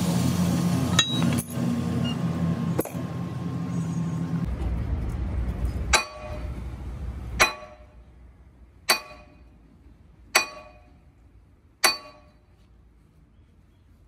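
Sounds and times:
low rumble: 0.4 - 10.3
hammer striking steel: 0.9 - 1.6, 5.6 - 6.6, 7.4 - 8.0, 8.8 - 9.6, 10.3 - 11.0, 11.8 - 12.5.

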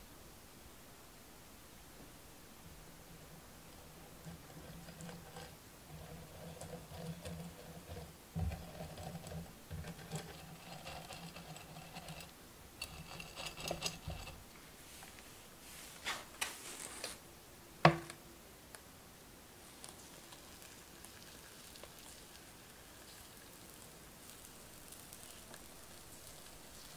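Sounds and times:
short rustle: 14.6 - 17.2.

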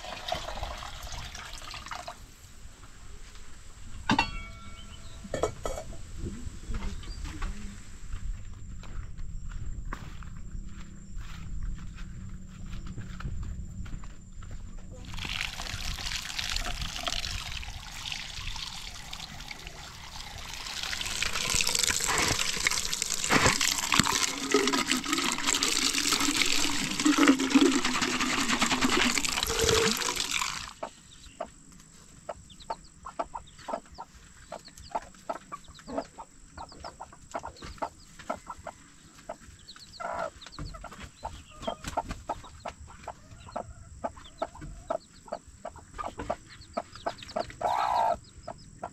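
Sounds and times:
water splashing from a hose: 0.0 - 2.2, 15.0 - 30.9
chicks peeping: 30.8 - 48.9
hen clucking softly: 32.2 - 48.9.

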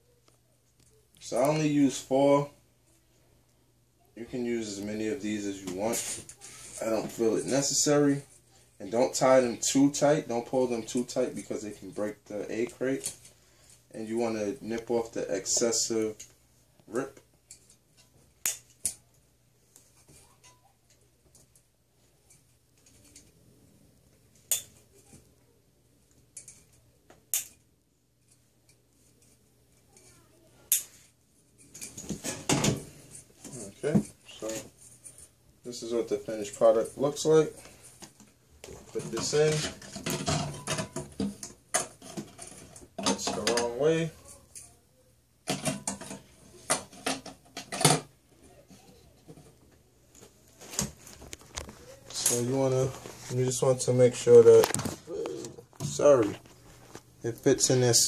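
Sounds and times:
plastic handling: 50.2 - 57.1.

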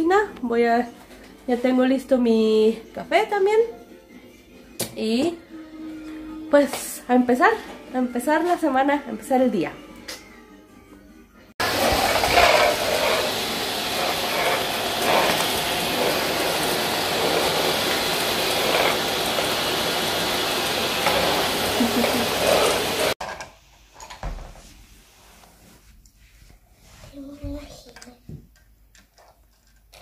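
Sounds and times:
vacuum cleaner running: 11.6 - 23.2.

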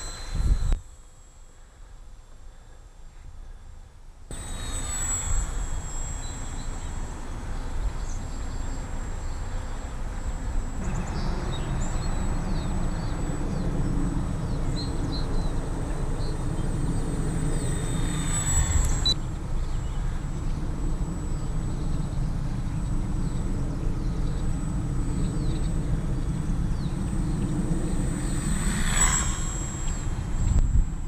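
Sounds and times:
wind rumbling on microphone: 0.0 - 0.9, 10.1 - 31.0
model plane motor whining: 0.0 - 2.5, 4.3 - 31.0.

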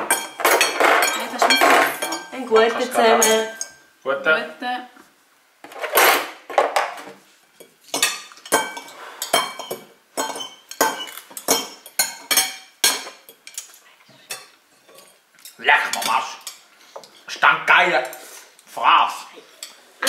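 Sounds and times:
forks clinking on ceramic plates: 0.0 - 3.8, 7.6 - 18.2, 19.4 - 19.8.

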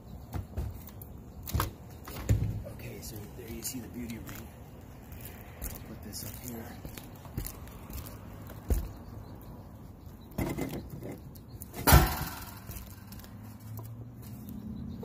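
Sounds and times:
scuffing on shingles: 3.1 - 9.6.

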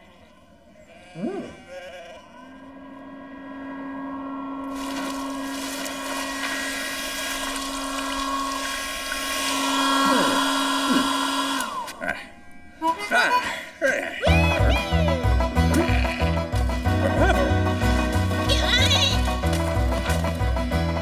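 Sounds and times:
hair dryer running: 4.6 - 12.0.

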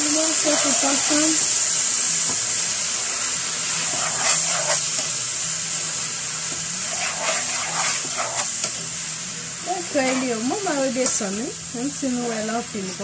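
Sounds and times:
vegetables sizzling in a pan: 0.0 - 13.0
stirring scrapes: 3.8 - 4.8, 6.8 - 8.6, 10.0 - 10.4.

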